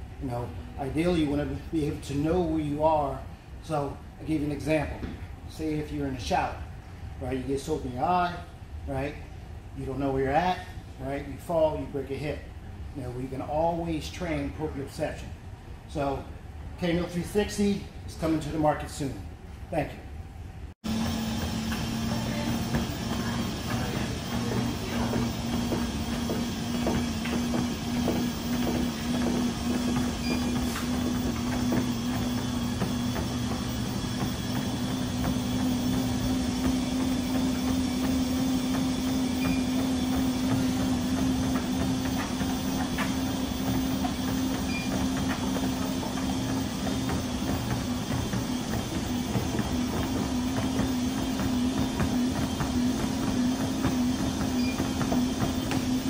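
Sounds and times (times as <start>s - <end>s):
treadmill motor hum: 0.0s - 6.6s, 20.8s - 56.0s
footsteps on treadmill belt: 20.9s - 56.0s
moving belt rumble: 20.9s - 56.0s.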